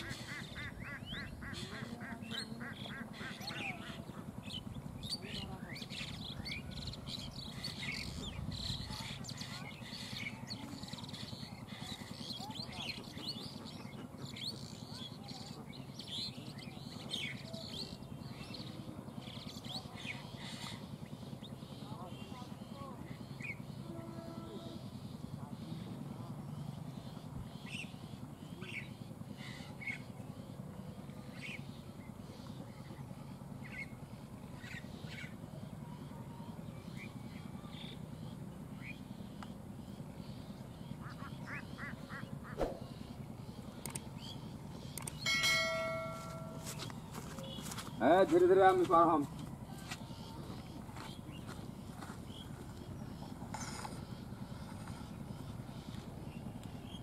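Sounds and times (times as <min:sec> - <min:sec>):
diesel locomotive engine rumble: 0:00.0 - 0:57.0
small birds chirping: 0:00.0 - 0:57.0
short bird calls: 0:40.3 - 0:48.3.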